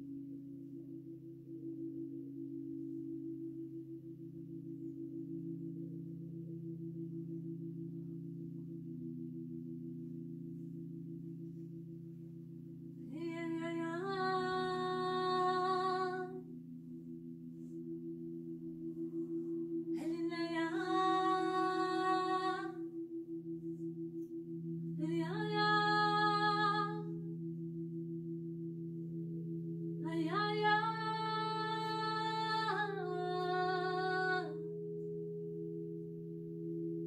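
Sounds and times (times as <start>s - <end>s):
singing bowls droning: 0.0s - 37.0s
woman singing wordless notes: 13.1s - 16.4s, 20.0s - 22.8s, 25.0s - 27.1s, 30.0s - 34.7s.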